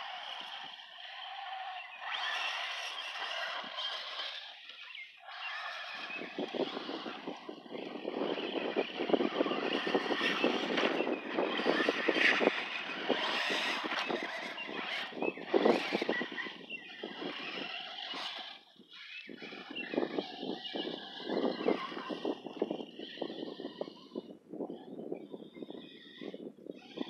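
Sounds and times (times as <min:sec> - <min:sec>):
rc trucks clattering on dirt: 0:00.0 - 0:19.2.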